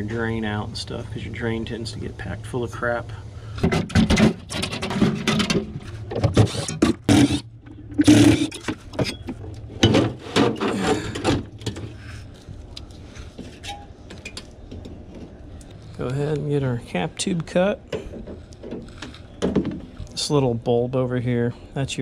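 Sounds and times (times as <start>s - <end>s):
metal parts and tools clattering: 3.6s - 7.4s.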